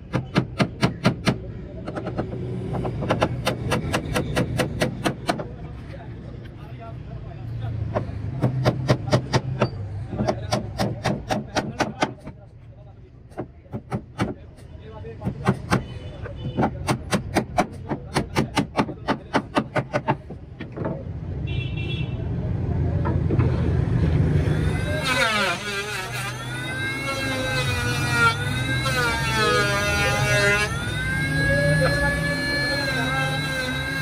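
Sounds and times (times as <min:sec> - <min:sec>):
electric hand planer whine: 0:24.6 - 0:34.0.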